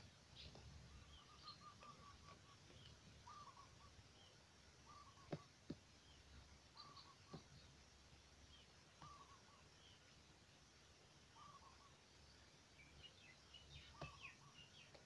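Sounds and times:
short bird calls: 0:00.4 - 0:05.6, 0:06.7 - 0:07.6, 0:09.0 - 0:09.7, 0:11.3 - 0:12.0, 0:13.6 - 0:15.0.

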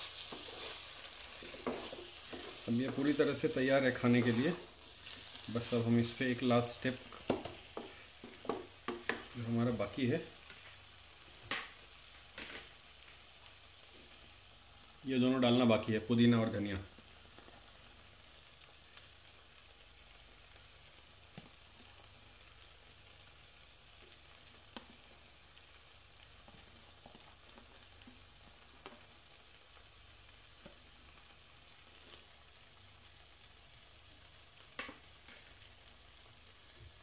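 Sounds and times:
food sizzling in a frying pan: 0:00.0 - 0:37.0
wooden spatula clicking on pan: 0:07.2 - 0:09.4.

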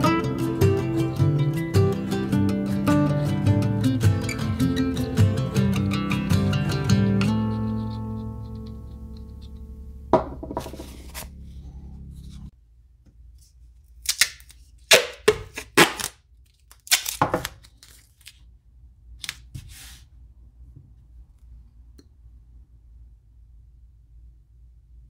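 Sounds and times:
acoustic guitar music: 0:00.0 - 0:12.5
tape rustling on bench: 0:10.4 - 0:12.5
tape pulled and torn: 0:13.9 - 0:18.4.

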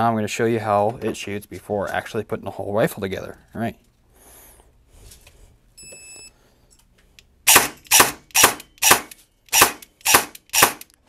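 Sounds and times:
gearbox dry-firing shots: 0:07.5 - 0:10.8.

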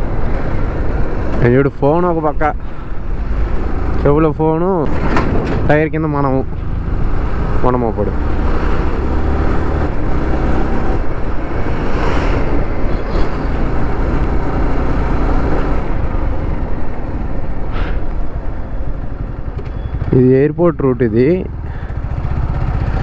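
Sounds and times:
heavy truck rumbling: 0:00.0 - 0:23.0
wind and road noise: 0:00.0 - 0:23.0
motorcycle engine running: 0:18.3 - 0:23.0.

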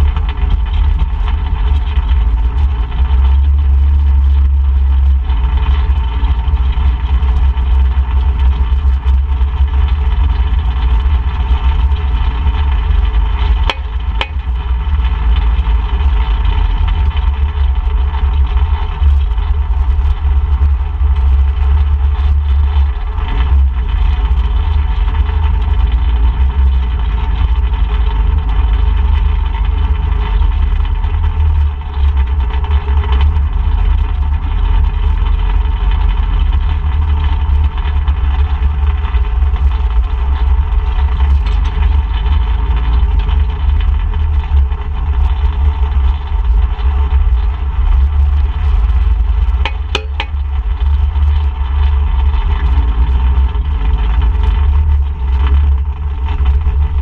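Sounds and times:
atv engine running: 0:00.0 - 0:57.0
sharp knocks: 0:49.6 - 0:50.4.

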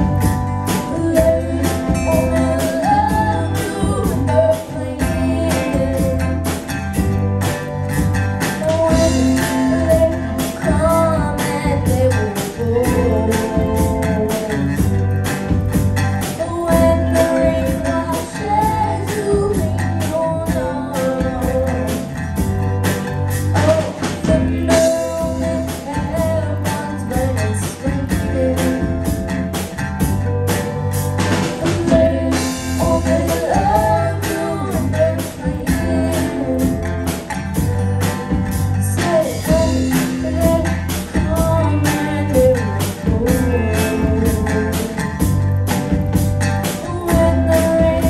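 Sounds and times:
woman singing lead vocal: 0:00.0 - 0:07.1, 0:08.4 - 0:15.6, 0:16.2 - 0:45.4, 0:46.4 - 0:48.0
bass guitar: 0:00.0 - 0:48.0
drum kit beat: 0:00.0 - 0:48.0
electric guitars: 0:00.0 - 0:48.0.

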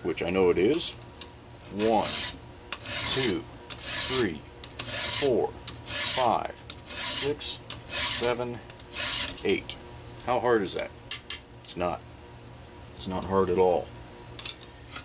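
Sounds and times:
file rasping on chainsaw chain: 0:01.7 - 0:04.2, 0:04.8 - 0:06.3, 0:06.9 - 0:09.4.

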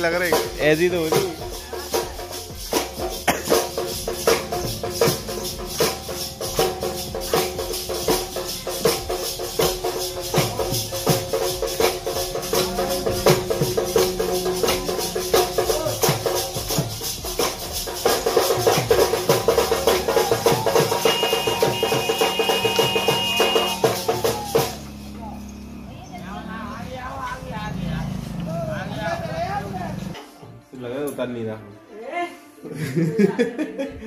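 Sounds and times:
music with fast percussion beat: 0:00.0 - 0:25.8.

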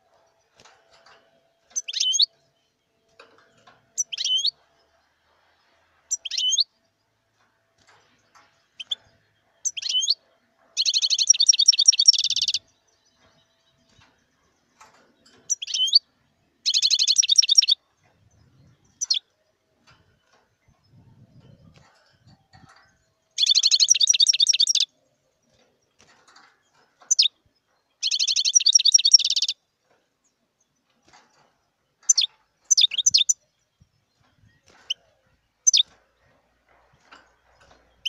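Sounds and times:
bird twittering: 0:01.8 - 0:02.3, 0:04.0 - 0:04.6, 0:06.1 - 0:06.6, 0:10.8 - 0:12.6, 0:15.5 - 0:16.0, 0:16.6 - 0:17.8, 0:18.7 - 0:19.3, 0:23.4 - 0:24.9, 0:27.1 - 0:27.3, 0:28.0 - 0:29.6, 0:32.1 - 0:33.4, 0:35.6 - 0:35.9.

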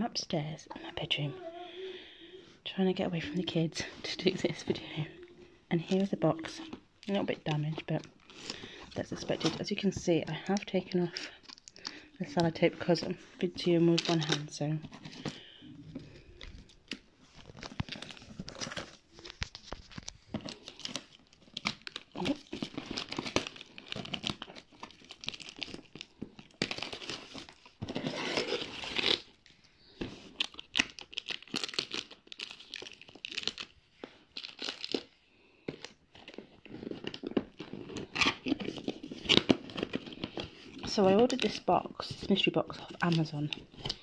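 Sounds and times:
plastic ribbon crinkling and tearing: 0:03.1 - 0:13.0, 0:13.8 - 0:15.5, 0:16.1 - 0:44.0.

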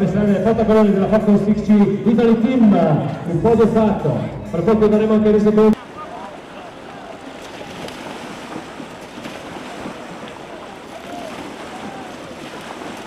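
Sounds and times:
wind buffeting microphone: 0:06.4 - 0:13.0.

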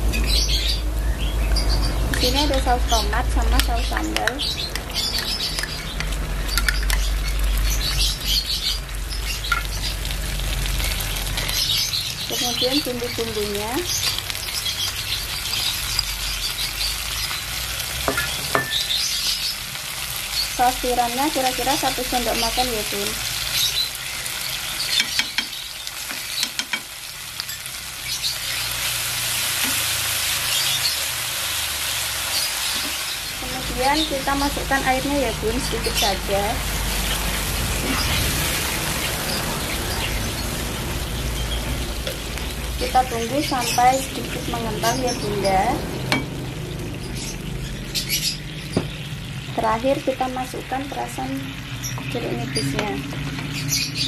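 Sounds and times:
food sizzling in hot oil: 0:00.0 - 0:54.0
metal spatula scraping and tapping: 0:25.0 - 0:26.9.

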